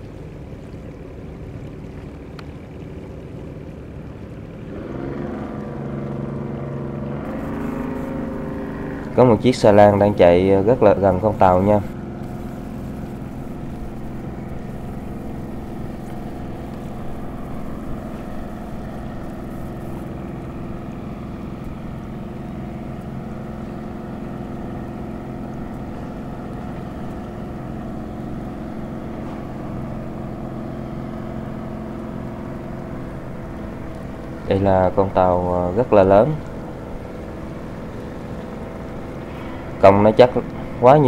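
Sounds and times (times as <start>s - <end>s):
boat engine droning: 0.0s - 41.0s.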